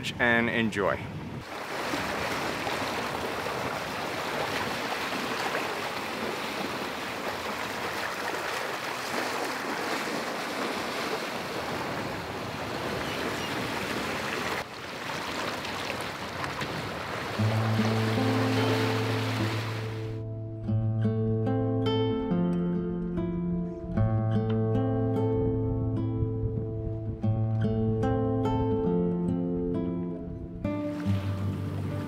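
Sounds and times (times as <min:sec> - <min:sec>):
water rushing past boat: 0:01.2 - 0:20.2.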